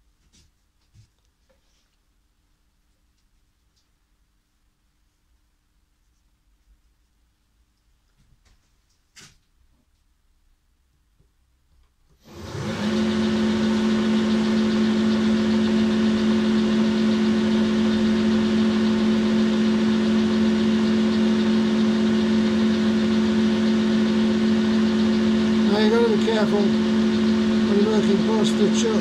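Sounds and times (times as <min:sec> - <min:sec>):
lathe motor whine: 0:12.2 - 0:29.0.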